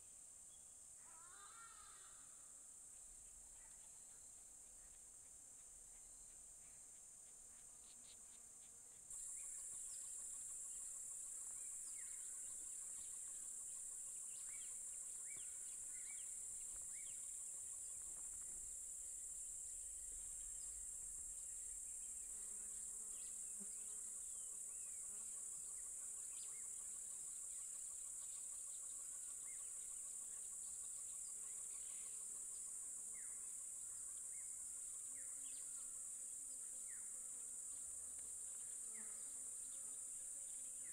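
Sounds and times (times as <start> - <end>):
insect chorus drone: 0.0 - 40.9
short insect chirps: 9.1 - 26.7.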